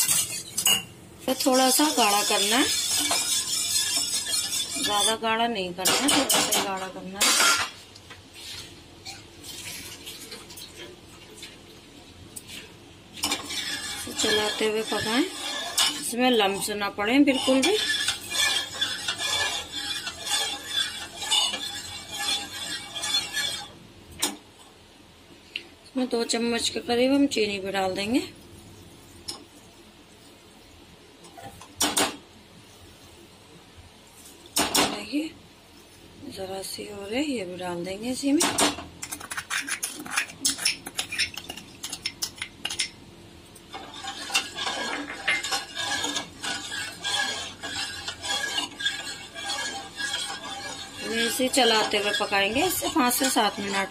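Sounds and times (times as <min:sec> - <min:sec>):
metal spoon scraping metal pot: 0:00.0 - 0:07.7, 0:13.2 - 0:23.8, 0:39.0 - 0:43.0, 0:43.7 - 0:53.9.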